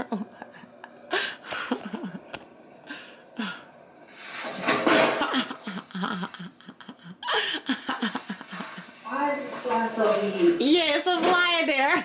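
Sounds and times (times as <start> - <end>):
woman laughing: 0.0 - 2.4, 5.1 - 9.2.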